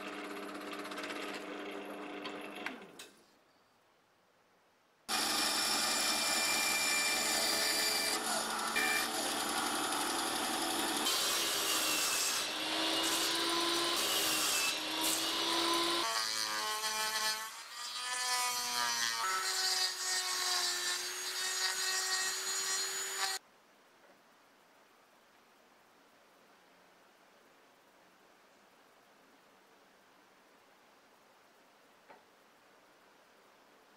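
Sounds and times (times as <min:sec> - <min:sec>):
rotary tool routing: 0:00.0 - 0:02.9, 0:05.1 - 0:23.4
table saw whining: 0:05.1 - 0:16.1
bandsaw whining: 0:05.1 - 0:16.2.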